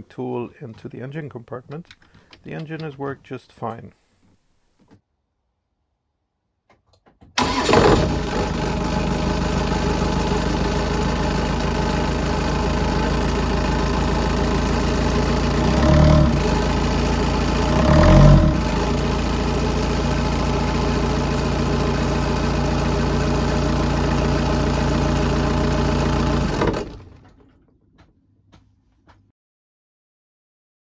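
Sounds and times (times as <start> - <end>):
diesel engine starting and idling: 7.4 - 27.6.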